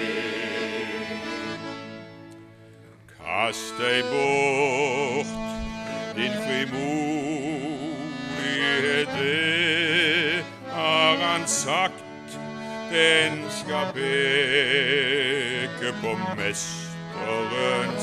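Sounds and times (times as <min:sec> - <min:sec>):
men's choir singing a hymn: 0:00.0 - 0:01.2
accordion chords: 0:00.0 - 0:18.0.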